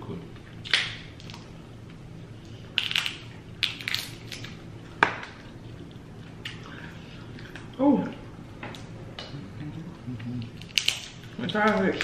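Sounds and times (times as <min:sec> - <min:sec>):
crab shells cracking: 0:00.6 - 0:01.5, 0:02.7 - 0:05.8, 0:10.5 - 0:12.0.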